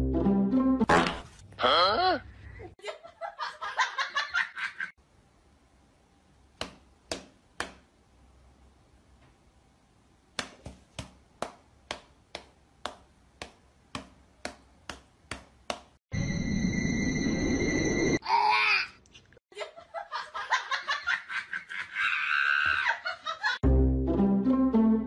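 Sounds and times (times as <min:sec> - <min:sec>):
paw and hand patting slaps: 0:06.6 - 0:07.9, 0:10.4 - 0:16.0.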